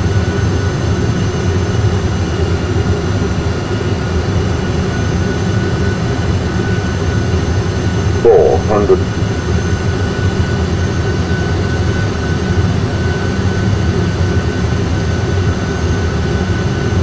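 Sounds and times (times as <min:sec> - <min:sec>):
faint steady whines: 0:08.2 - 0:09.1
aircraft engines and airflow rumble: 0:08.2 - 0:09.2.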